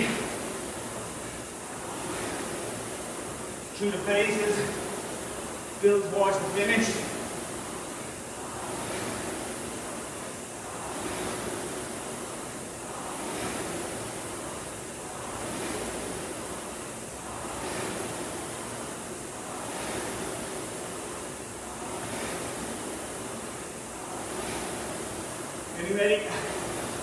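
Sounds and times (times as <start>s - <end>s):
rowing machine flywheel whooshing: 0.0s - 27.0s.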